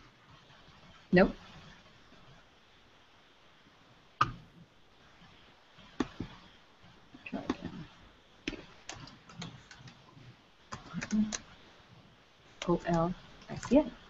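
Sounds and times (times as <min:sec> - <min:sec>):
computer keyboard and mouse clicking: 0:08.5 - 0:10.0, 0:10.7 - 0:11.5, 0:12.6 - 0:13.9.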